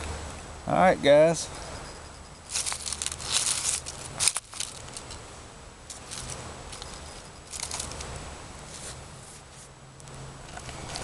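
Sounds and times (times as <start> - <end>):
dry leaves rustling: 2.4 - 11.0
fire kit rustling: 2.5 - 5.2, 5.9 - 9.7.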